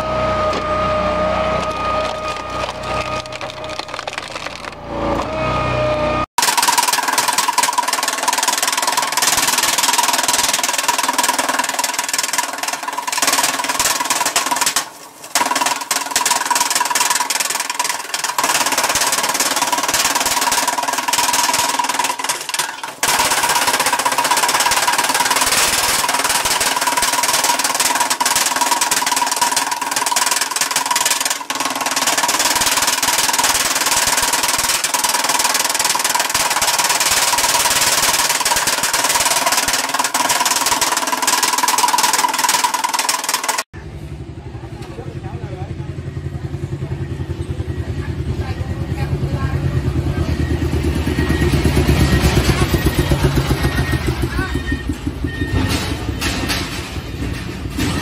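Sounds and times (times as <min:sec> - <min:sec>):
machine whine: 0:00.0 - 0:14.7
wood chipper chopping branches: 0:00.0 - 0:43.7, 0:49.1 - 0:58.0.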